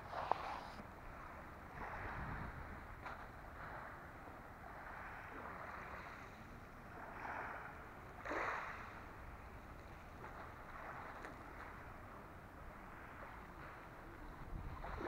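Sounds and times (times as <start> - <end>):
small waves lapping on pebbles: 0.0 - 4.0, 7.0 - 12.0.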